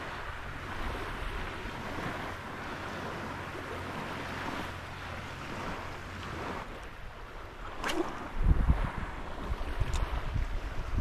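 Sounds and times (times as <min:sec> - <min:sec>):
small waves washing: 0:00.0 - 0:11.0
wind noise on microphone: 0:05.4 - 0:11.0.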